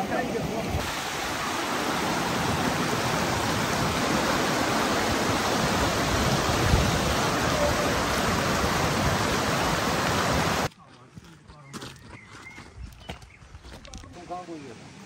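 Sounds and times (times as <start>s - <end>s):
rushing water: 0.0s - 10.7s.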